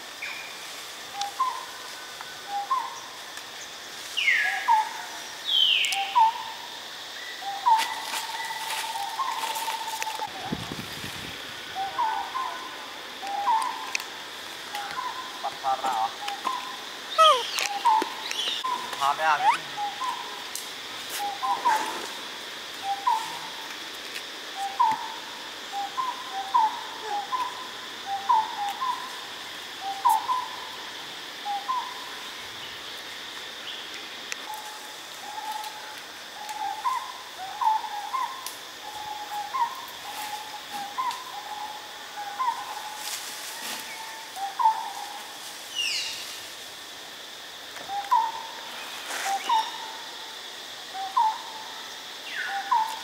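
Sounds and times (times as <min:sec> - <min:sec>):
bird hooting: 0:14.8 - 0:20.3.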